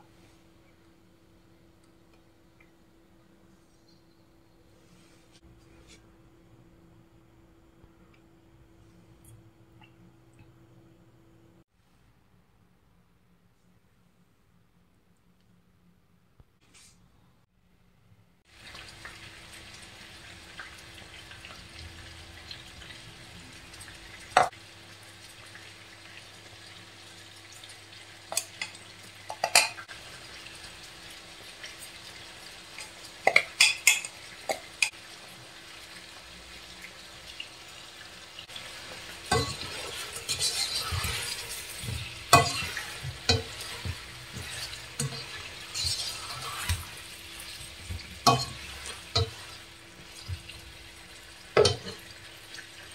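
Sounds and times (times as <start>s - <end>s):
meat sizzling in a pan: 18.5s - 52.9s.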